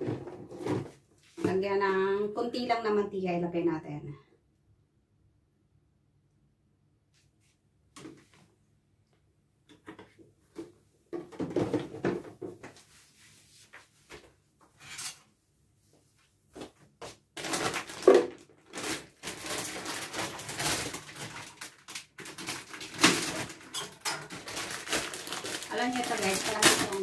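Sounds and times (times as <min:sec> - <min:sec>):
plastic bag crinkling: 0:17.4 - 0:27.0.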